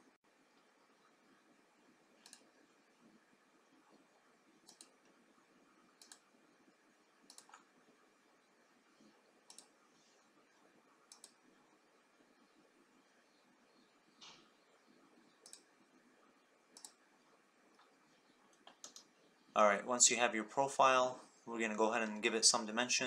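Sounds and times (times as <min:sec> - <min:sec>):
faint steady hiss: 0:00.0 - 0:23.0
computer mouse clicks: 0:02.2 - 0:02.6, 0:04.6 - 0:05.2, 0:06.0 - 0:06.3, 0:07.2 - 0:07.7, 0:09.5 - 0:09.8, 0:11.1 - 0:11.4, 0:14.1 - 0:15.7, 0:16.7 - 0:17.0, 0:17.7 - 0:19.1.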